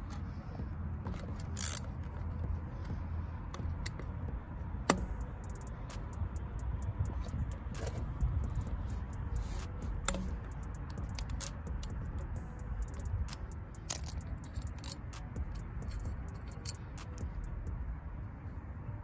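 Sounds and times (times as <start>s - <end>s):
low rumble: 0.0s - 19.0s
hand ratchet clicking: 1.1s - 2.5s, 4.9s - 17.6s
metal tools clinking: 12.8s - 17.3s.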